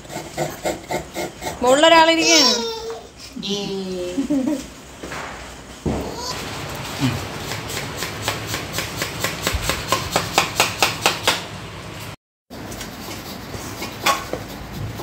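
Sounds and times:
knife chopping on steel plate: 7.4 - 11.5.

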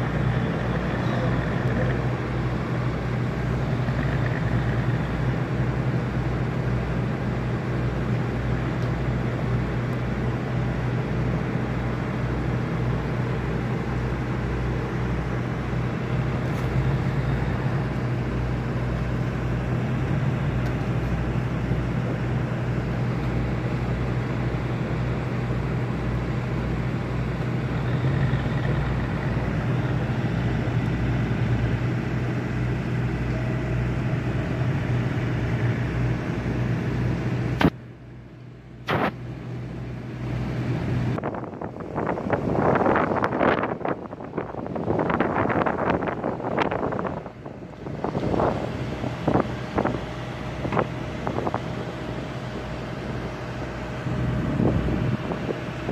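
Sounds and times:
boat diesel engine throbbing: 0.0 - 55.9.

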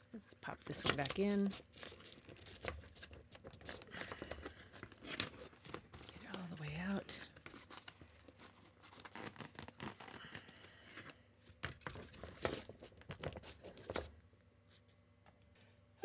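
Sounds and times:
nylon fabric rustling: 8.7 - 10.2.

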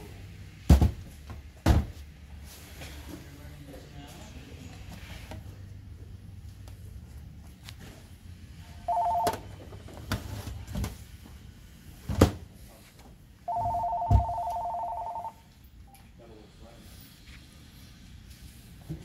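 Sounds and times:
telephone ringing two-tone trill: 8.9 - 9.4, 13.5 - 15.4.

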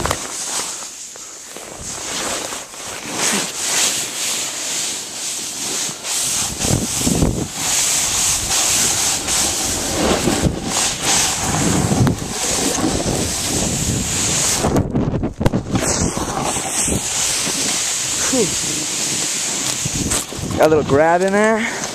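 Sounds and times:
snowboard scraping over snow: 0.0 - 21.9
wind buffeting microphone: 6.3 - 21.2.

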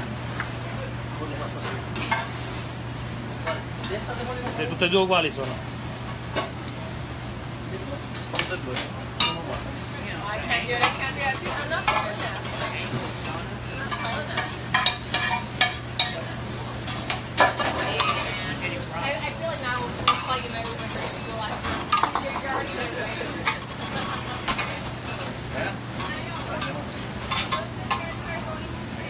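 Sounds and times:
sizzling pans: 0.0 - 29.0
metal pans and utensils clattering: 1.2 - 2.7, 8.1 - 28.6.

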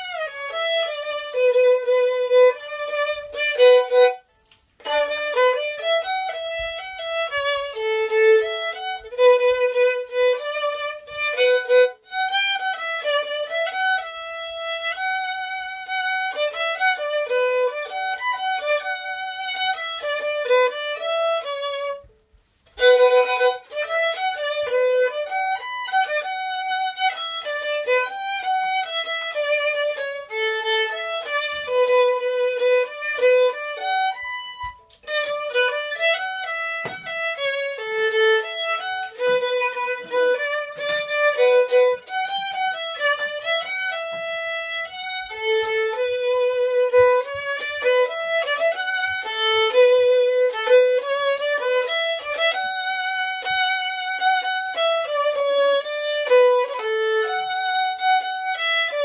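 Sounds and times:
solo violin melody: 0.0 - 59.0.

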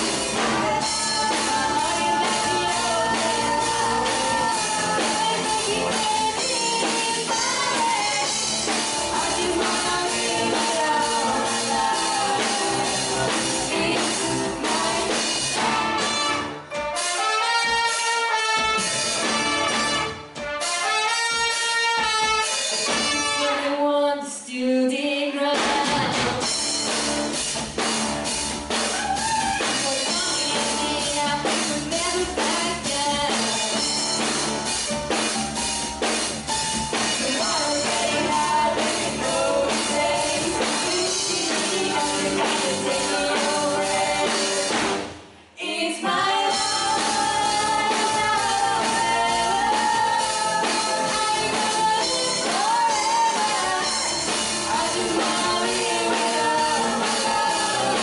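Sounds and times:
women singing: 0.0 - 16.0, 23.6 - 26.4, 29.8 - 34.1, 37.1 - 58.0
live pop-rock band: 0.0 - 58.0.

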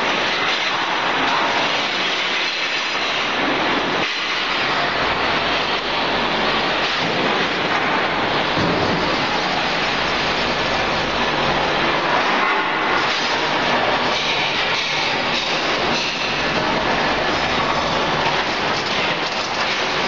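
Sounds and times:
loud steady machine noise: 0.0 - 20.0.

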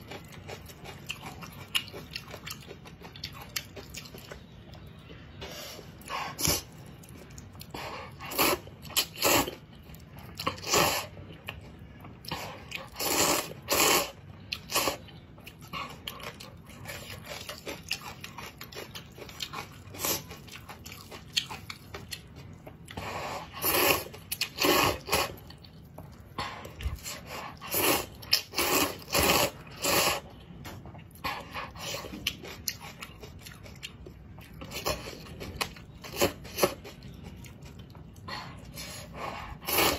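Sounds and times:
person slurping noodles: 7.7 - 9.6, 10.6 - 11.1, 12.3 - 15.0, 23.0 - 25.4, 26.9 - 30.3, 38.4 - 39.9.

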